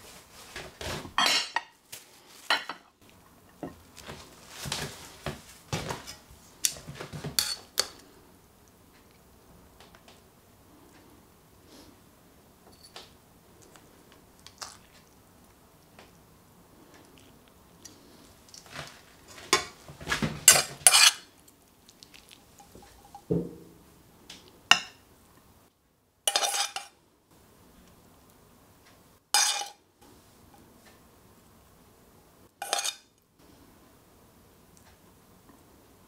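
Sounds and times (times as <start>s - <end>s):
utensils clinking on plates and pans: 0.8s - 1.8s, 2.4s - 2.9s, 5.8s - 8.0s, 18.5s - 21.3s, 26.3s - 26.9s, 29.4s - 29.8s, 32.6s - 33.1s.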